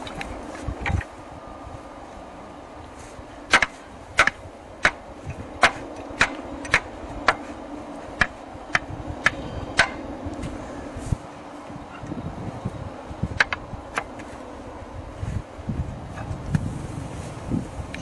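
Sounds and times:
sharp knocks: 3.5s - 5.0s, 5.6s - 7.5s, 8.2s - 10.0s.

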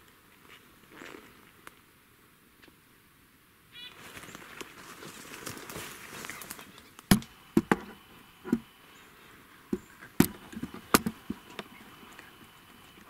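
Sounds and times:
dry sticks snapping: 4.6s - 7.8s.

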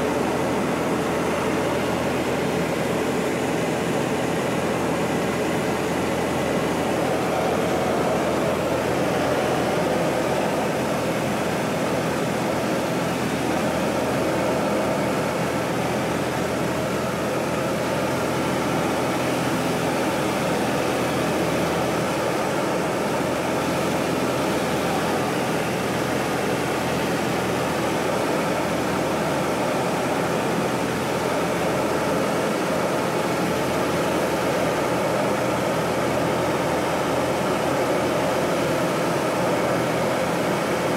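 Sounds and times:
airplane engine and propeller drone: 0.0s - 40.9s.

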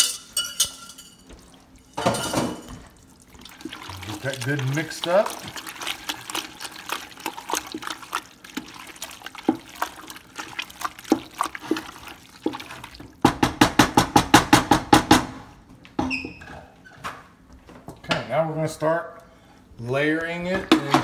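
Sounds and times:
wooden spoon stirring in pot: 2.6s - 14.0s.

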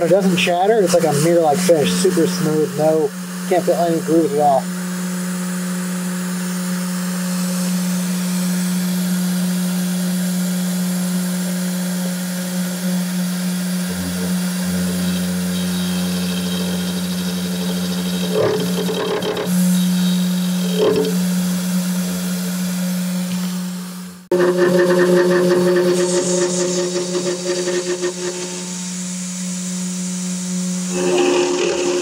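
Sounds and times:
router spindle cutting metal: 10.6s - 22.5s, 24.3s - 29.0s, 30.8s - 32.0s.

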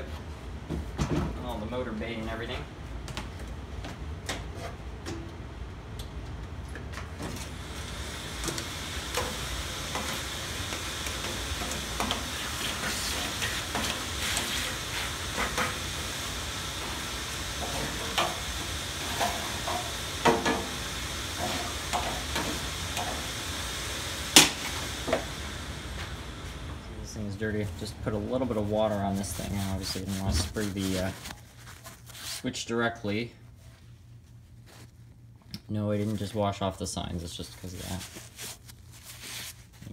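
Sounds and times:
vacuum cleaner hissing: 7.5s - 31.3s.

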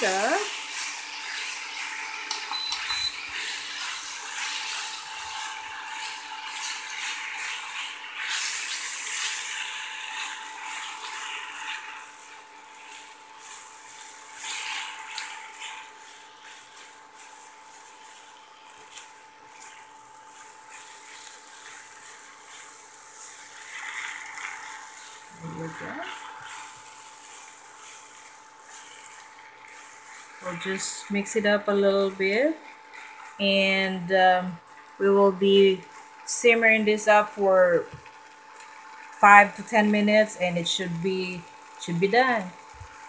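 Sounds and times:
spatula scraping pan: 0.0s - 33.7s
steady hum: 0.0s - 38.0s
food sizzling: 0.0s - 43.0s.

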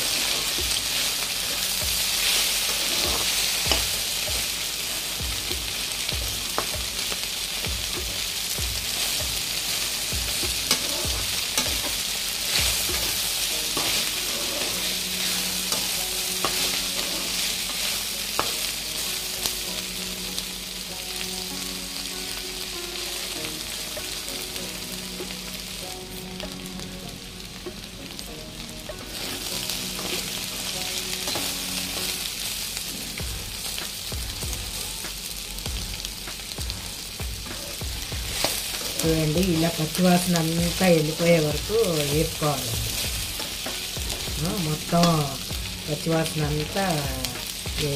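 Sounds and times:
spatula scraping a pan: 0.0s - 5.7s, 8.9s - 19.4s, 37.4s - 44.4s
vegetables sizzling in hot oil: 0.0s - 47.9s.

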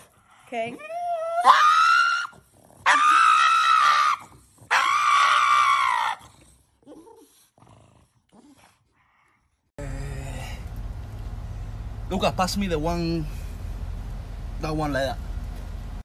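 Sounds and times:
dog screaming: 1.0s - 6.4s.

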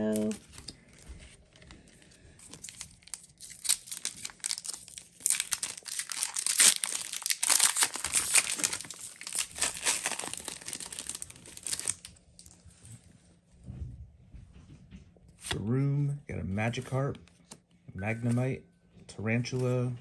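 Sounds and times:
foil wrapper crinkling and tearing: 0.0s - 12.7s.

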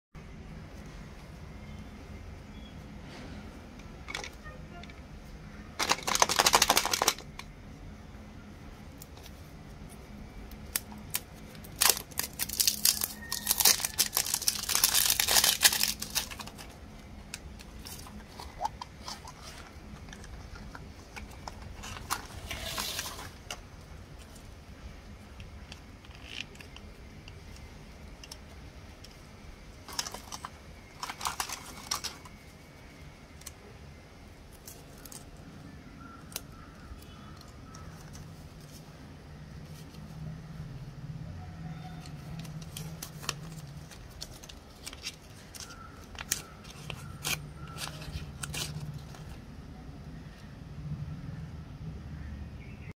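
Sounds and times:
plastic wrapper tearing and crinkling: 5.8s - 7.4s, 10.5s - 23.6s, 29.8s - 32.4s, 42.2s - 49.4s.

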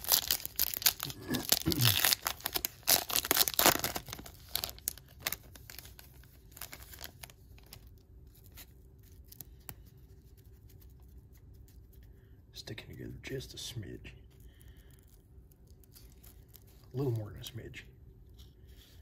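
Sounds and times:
wrapper tearing and crinkling: 0.0s - 9.5s, 15.6s - 16.9s.

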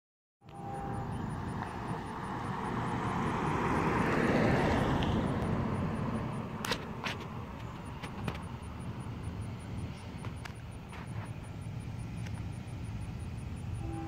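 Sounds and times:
passing vehicle rushing: 0.6s - 10.2s.

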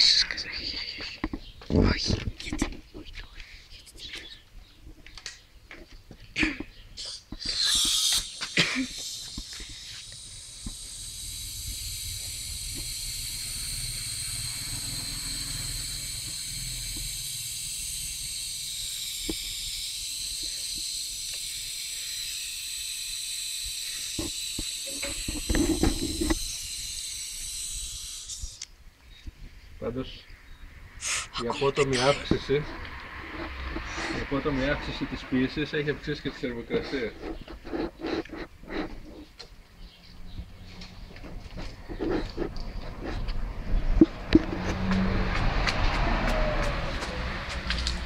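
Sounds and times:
gas hissing into a balloon: 7.0s - 28.6s, 31.0s - 31.4s.

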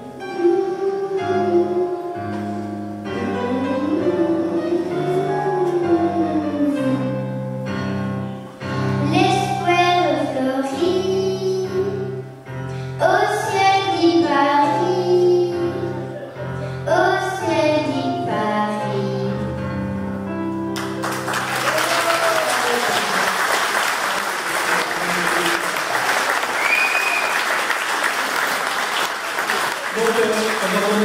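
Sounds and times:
instrumental accompaniment: 0.0s - 21.9s
girl singing into a microphone: 0.1s - 7.4s, 8.7s - 19.8s
audience applause: 20.8s - 31.0s.

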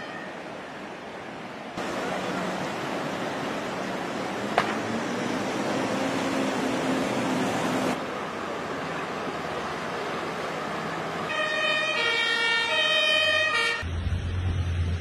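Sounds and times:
rushing floodwater: 0.0s - 13.7s
two-tone siren: 11.3s - 13.9s.

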